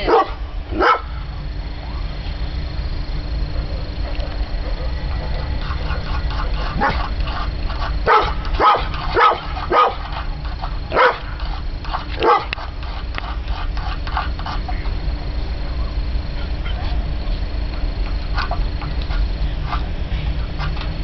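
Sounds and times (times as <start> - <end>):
dog barking: 0.0 - 1.1, 3.5 - 7.1, 8.0 - 10.1, 10.9 - 11.3, 12.2 - 12.6
steady low rumble: 0.0 - 21.0.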